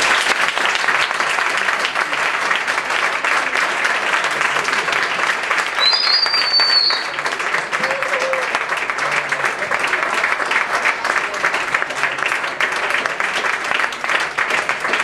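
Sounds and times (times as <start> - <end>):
audience applauding: 0.0 - 15.0
high whistle: 5.8 - 7.1.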